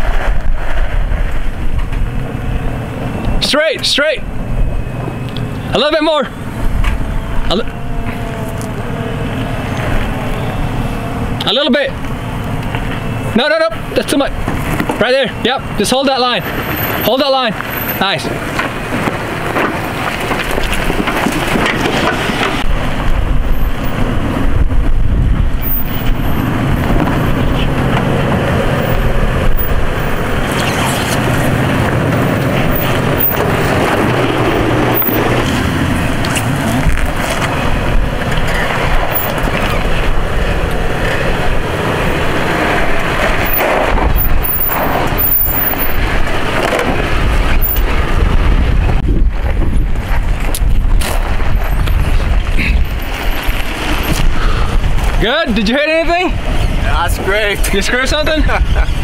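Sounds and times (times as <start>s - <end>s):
off-road vehicle engine low revs: 0.0s - 59.0s
vehicle knocks and scrapes: 14.3s - 15.1s, 16.4s - 55.3s.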